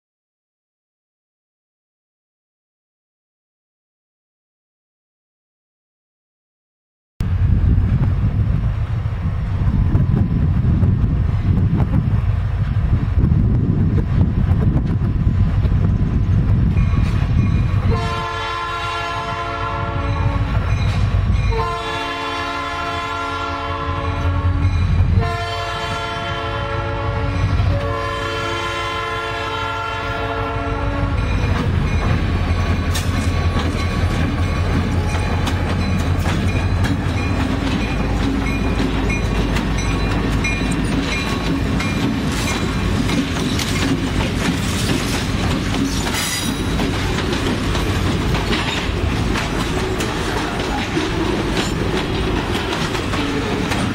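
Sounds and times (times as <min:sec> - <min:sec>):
locomotive engine drone: 0:07.2 - 0:53.9
locomotive air horn blasts: 0:17.8 - 0:20.6, 0:21.5 - 0:31.4
train wheels clattering on rails: 0:31.1 - 0:53.9.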